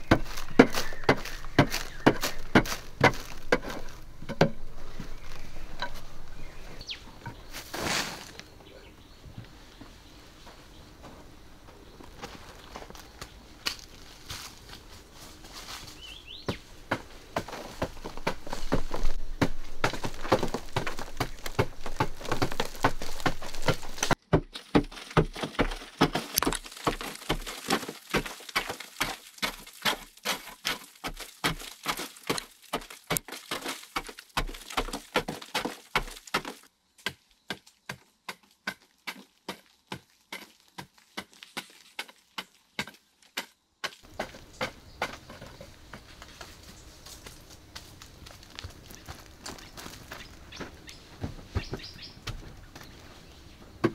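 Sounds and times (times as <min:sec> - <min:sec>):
digging tool striking dry earth: 0:00.0 - 0:06.0, 0:16.4 - 0:46.3.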